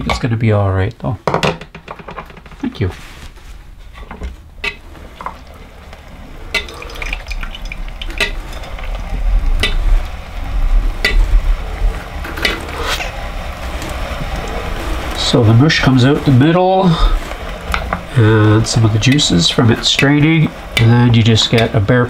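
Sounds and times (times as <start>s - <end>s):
wet squishing berry mush: 4.7s - 17.7s.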